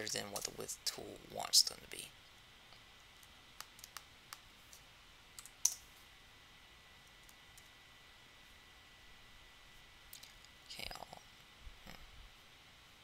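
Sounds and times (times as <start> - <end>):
faint steady hiss: 0.0 - 13.0
mouse and keyboard clicks: 3.6 - 4.4.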